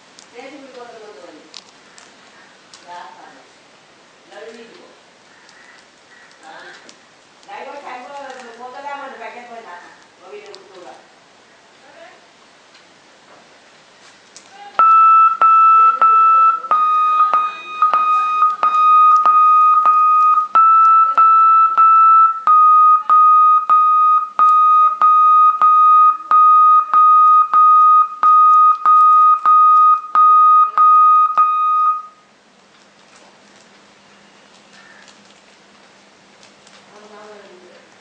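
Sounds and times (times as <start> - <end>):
high pulsing beep tone: 14.8 - 32.2.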